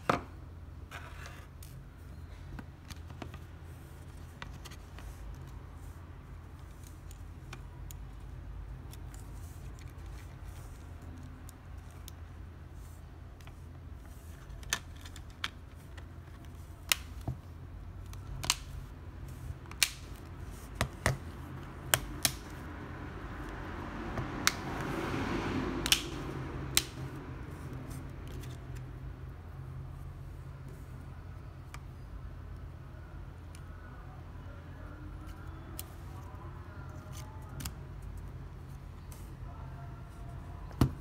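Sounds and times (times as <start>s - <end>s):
plastic clips snapping: 19.7s - 20.1s.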